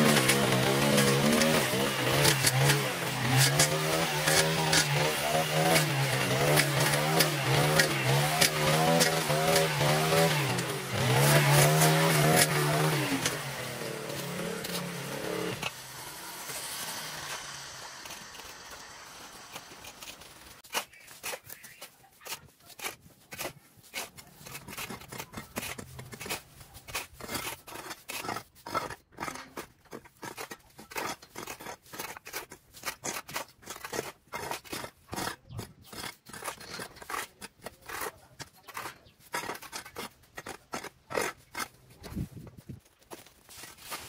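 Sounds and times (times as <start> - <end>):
cutting tool snipping: 0.0 - 15.0.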